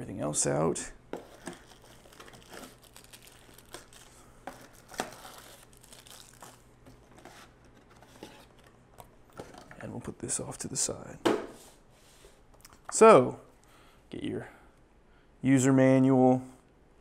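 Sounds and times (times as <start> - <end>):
plastic bags crinkling: 1.2 - 8.7.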